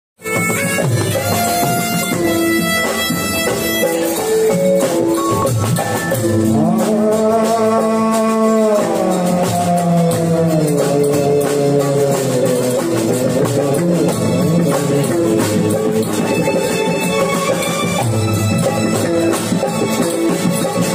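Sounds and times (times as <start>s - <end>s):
drums: 0.2s - 20.9s
man singing into a microphone: 6.2s - 16.6s.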